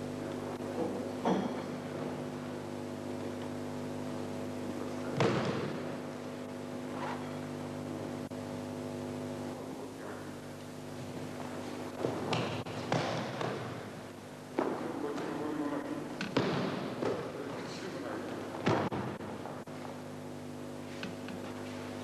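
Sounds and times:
electrical hum: 0:00.0 - 0:22.0
knocks on mat: 0:05.1 - 0:05.8, 0:16.2 - 0:17.3.

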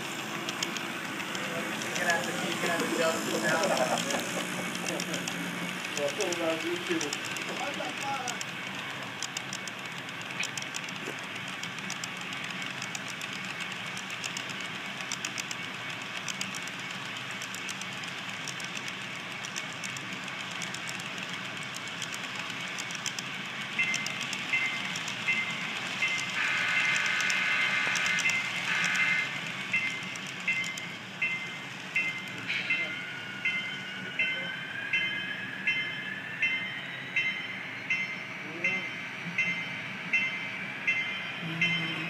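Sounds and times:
model freight cars rolling: 0:00.0 - 0:37.3
bell ringing: 0:23.8 - 0:27.1, 0:28.1 - 0:42.0
train horn: 0:26.4 - 0:29.4.

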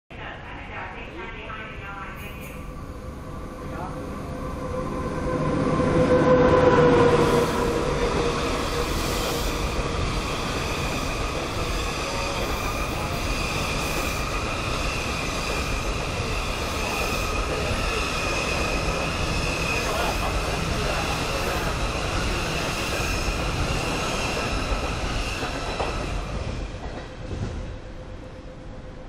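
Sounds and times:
electric locomotive passing: 0:00.2 - 0:29.0
train wheels rumbling on rail: 0:03.5 - 0:28.9.

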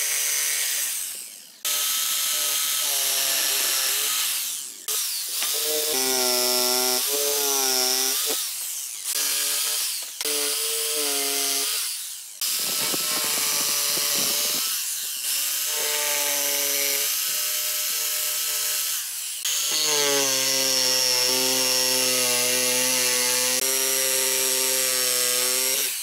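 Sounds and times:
jigsaw cutting wood: 0:00.0 - 0:26.0.

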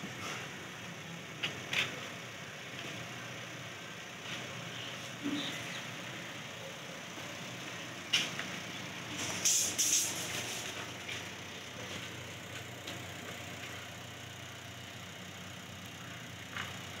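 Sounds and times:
car engine idling: 0:00.0 - 0:17.0
brief hiss: 0:09.2 - 0:10.6.

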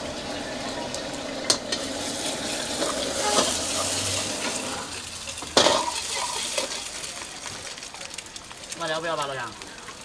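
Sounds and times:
egg sizzling in oil: 0:00.0 - 0:10.0
metal ladle scraping a pan: 0:01.5 - 0:06.9
ladle clanging on wok: 0:02.8 - 0:04.6, 0:05.4 - 0:06.8.

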